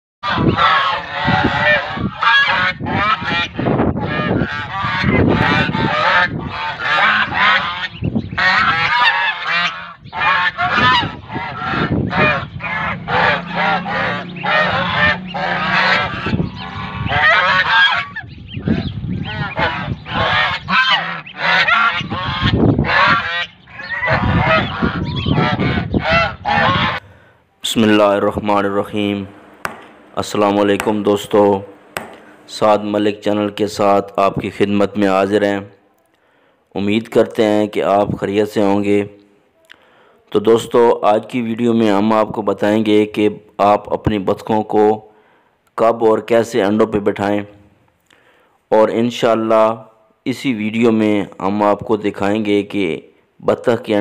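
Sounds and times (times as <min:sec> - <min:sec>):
geese honking: 0:00.2 - 0:33.0.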